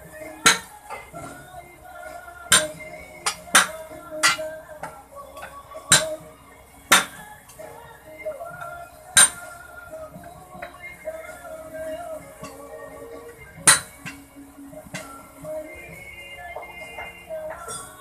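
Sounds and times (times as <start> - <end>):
metal clanks on wheel rim: 0.3 - 1.5, 2.5 - 6.3, 6.9 - 7.6, 8.6 - 9.5, 13.2 - 14.3.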